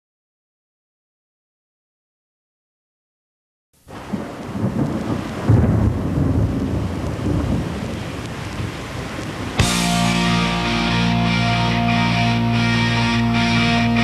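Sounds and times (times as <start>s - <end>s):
hard rock band with electric guitar: 9.6s - 14.0s.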